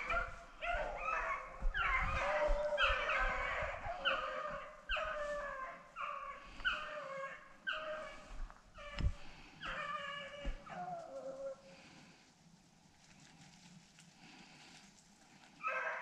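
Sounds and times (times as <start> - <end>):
hounds baying: 0.0 - 11.7, 15.6 - 16.0.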